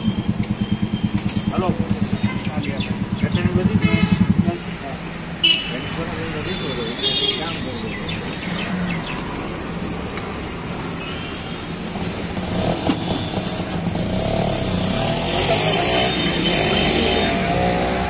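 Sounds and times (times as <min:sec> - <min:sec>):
motorcycle engine running: 0:00.0 - 0:05.2
street traffic: 0:00.0 - 0:18.0.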